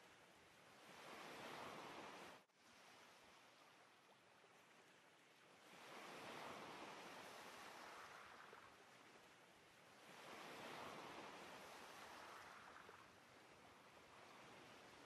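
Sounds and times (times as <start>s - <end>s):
faint sea waves washing in: 0.0s - 15.0s.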